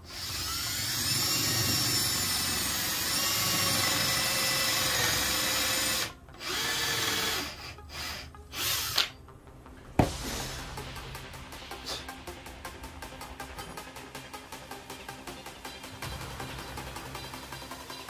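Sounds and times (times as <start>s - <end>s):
cordless drill running: 0.0s - 9.1s.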